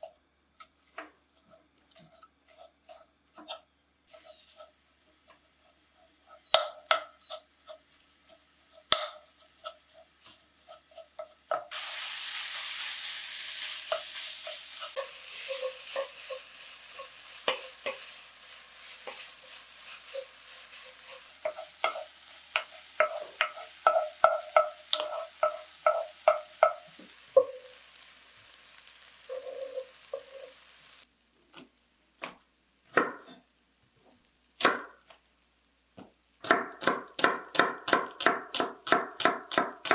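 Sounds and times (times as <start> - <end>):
food sizzling in a frying pan: 2.0 - 39.9
utensil scraping and clicking on pan: 13.9 - 27.6.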